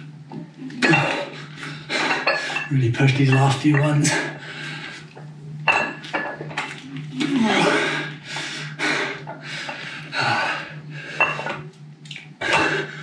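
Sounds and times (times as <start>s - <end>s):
man breathing hard: 1.2s - 2.7s, 4.1s - 5.2s, 7.3s - 11.6s, 12.4s - 13.0s
man grunting: 7.2s - 8.0s.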